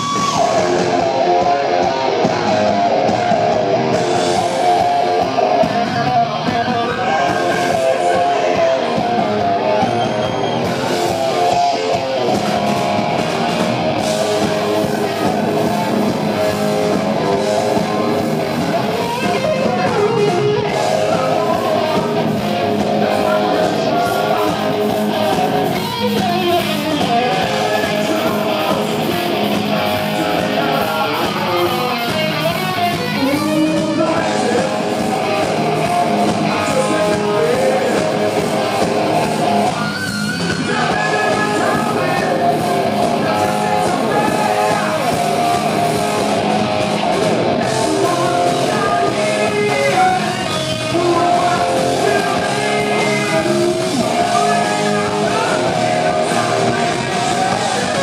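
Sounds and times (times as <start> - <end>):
bass guitar: 0.0 - 58.0
distorted electric guitar solo: 0.0 - 58.0
drums: 0.0 - 58.0.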